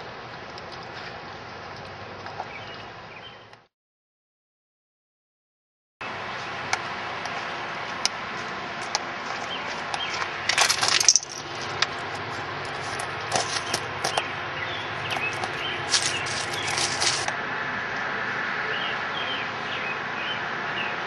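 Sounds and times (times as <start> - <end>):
crisp crackling rustle: 9.2 - 14.2, 14.8 - 17.4.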